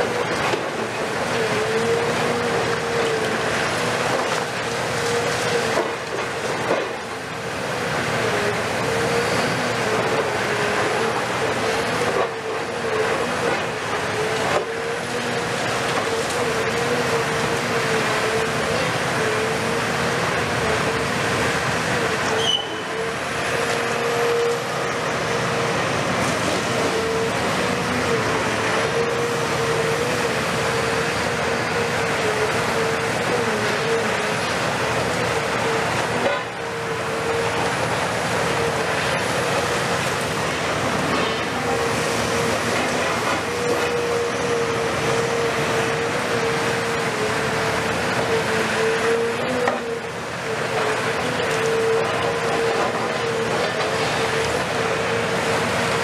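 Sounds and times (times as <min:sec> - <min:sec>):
excavator hydraulics whining: 0:00.0 - 0:56.0.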